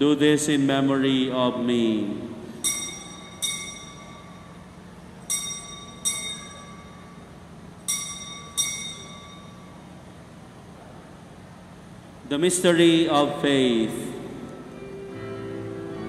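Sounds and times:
altar bell ringing: 2.6s - 10.0s.

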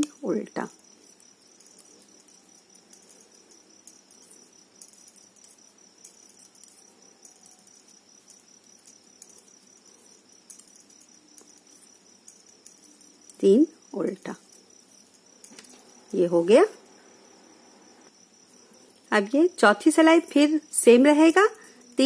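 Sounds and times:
knitting needles clicking: 0.0s - 17.0s, 18.8s - 22.0s
wool yarn rustling: 0.0s - 17.2s.

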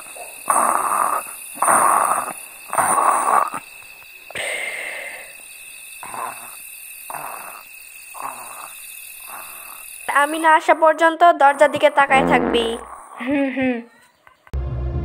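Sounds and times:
person snoring: 0.0s - 3.7s, 6.0s - 10.2s, 11.4s - 13.3s
crickets chirring: 0.0s - 14.5s.

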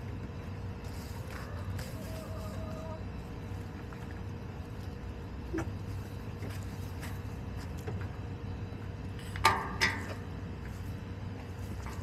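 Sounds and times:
hens pecking and scratching dirt: 0.0s - 12.0s
hen clucking: 1.3s - 3.2s.

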